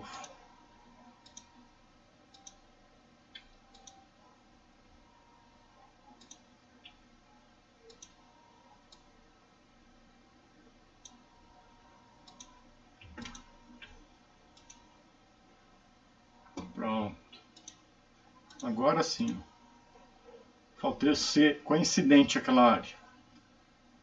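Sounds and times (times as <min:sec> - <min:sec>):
computer mouse clicking: 0:01.2 - 0:01.6, 0:02.3 - 0:02.6, 0:03.3 - 0:04.0, 0:06.1 - 0:07.0, 0:07.9 - 0:08.2, 0:08.9 - 0:09.1, 0:12.2 - 0:14.9, 0:17.3 - 0:17.8, 0:18.5 - 0:19.4.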